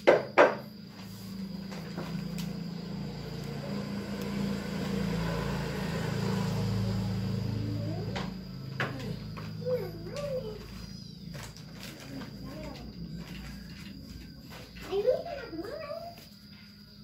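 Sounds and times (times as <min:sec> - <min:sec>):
sharp knocks: 0:00.0 - 0:00.7
vehicle engine running: 0:00.8 - 0:15.0.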